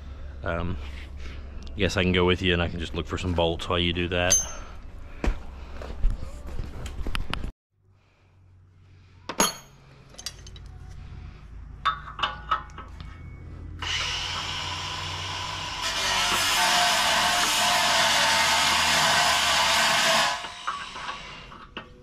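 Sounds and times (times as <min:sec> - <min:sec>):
metal clinks of tools: 0:04.3 - 0:04.8, 0:09.3 - 0:10.8
power tool whirring: 0:13.8 - 0:21.6.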